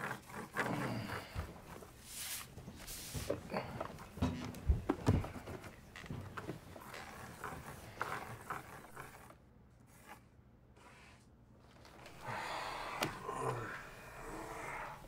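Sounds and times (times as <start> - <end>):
man breathing: 12.1 - 15.0.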